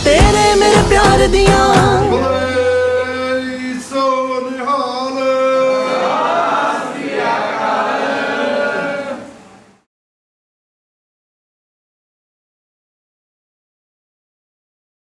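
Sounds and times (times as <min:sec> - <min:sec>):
song accompaniment: 0:00.0 - 0:04.4
person singing long notes: 0:00.0 - 0:05.0.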